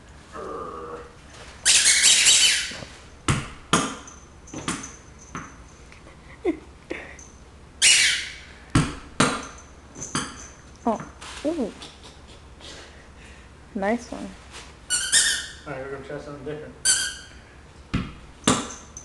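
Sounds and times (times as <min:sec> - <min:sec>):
tennis ball bouncing on hard floor: 0:03.3 - 0:05.6, 0:08.7 - 0:10.4, 0:17.9 - 0:18.9.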